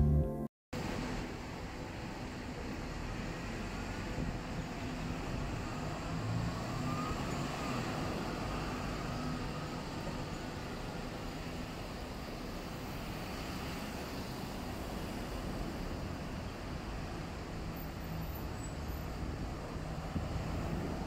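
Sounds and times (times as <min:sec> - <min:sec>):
traffic rumble: 0:00.8 - 0:21.0.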